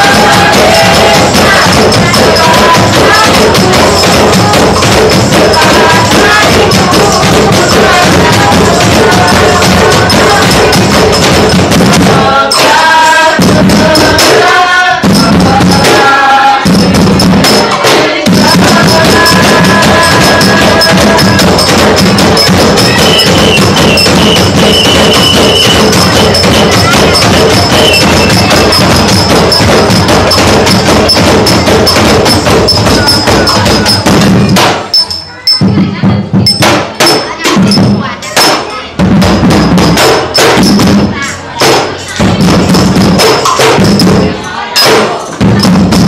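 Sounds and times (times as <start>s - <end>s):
group drums and hand percussion: 0.0s - 46.0s
voices singing together: 0.0s - 46.0s.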